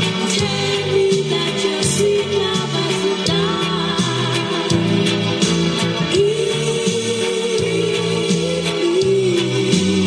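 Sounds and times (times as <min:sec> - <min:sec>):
music with bass and beat: 0:00.0 - 0:10.0.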